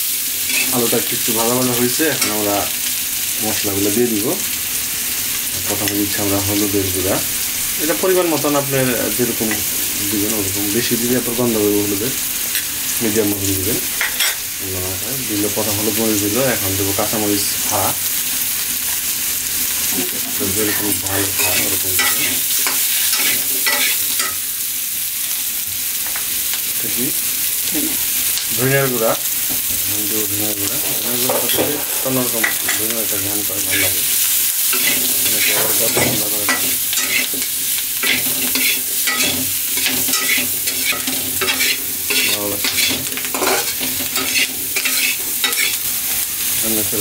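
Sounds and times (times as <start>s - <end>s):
food sizzling in oil: 0.0s - 47.0s
metal spatula scraping wok: 0.5s - 0.8s, 20.6s - 24.4s, 30.8s - 45.8s.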